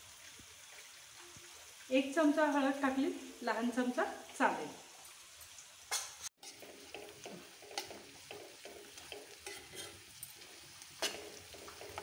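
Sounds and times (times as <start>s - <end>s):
onions sizzling in hot oil: 0.0s - 12.0s
steel spoon scraping pan: 6.4s - 12.0s.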